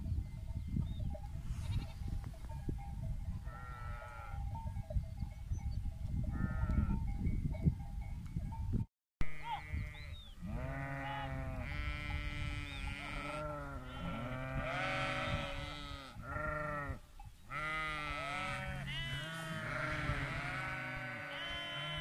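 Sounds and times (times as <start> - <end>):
sheep bleating: 9.2 - 22.0.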